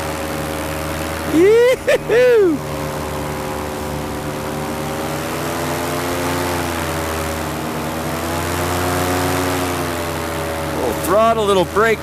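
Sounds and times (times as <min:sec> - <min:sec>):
paramotor engine drone: 0:00.0 - 0:12.0.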